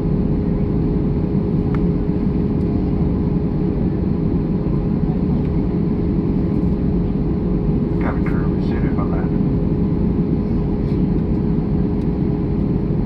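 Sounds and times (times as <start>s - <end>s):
aircraft engines roaring: 0.0s - 13.0s
steady hum: 5.8s - 13.0s.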